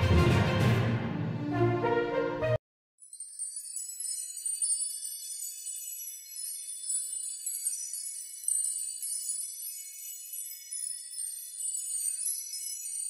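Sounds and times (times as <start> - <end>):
high glassy tinkling chimes: 3.0 - 13.0.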